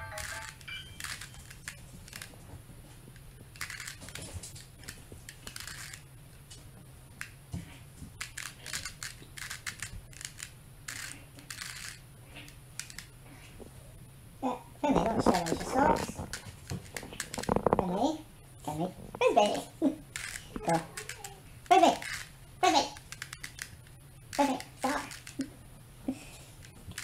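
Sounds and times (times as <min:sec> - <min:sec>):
puzzle cube turning clicks: 0:00.0 - 0:02.4, 0:03.5 - 0:06.0, 0:08.2 - 0:12.0, 0:12.8 - 0:13.1, 0:15.1 - 0:17.8, 0:20.1 - 0:25.5, 0:26.6 - 0:27.0.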